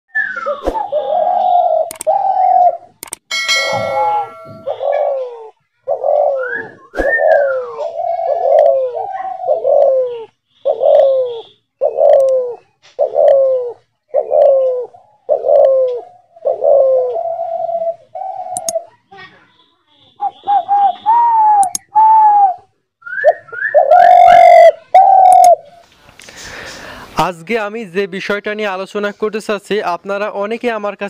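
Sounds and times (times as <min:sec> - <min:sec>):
dove cooing: 0:00.3 - 0:03.0, 0:03.8 - 0:19.0, 0:20.2 - 0:25.8.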